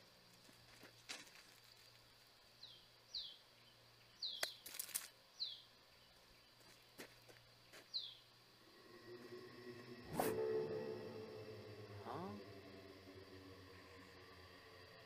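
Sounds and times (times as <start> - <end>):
faint bird chirps: 2.6 - 4.6, 5.3 - 15.0.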